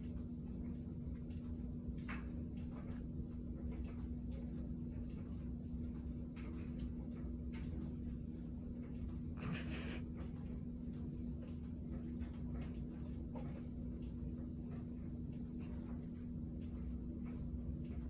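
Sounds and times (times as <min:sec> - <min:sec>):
cat purring: 0:09.4 - 0:10.0.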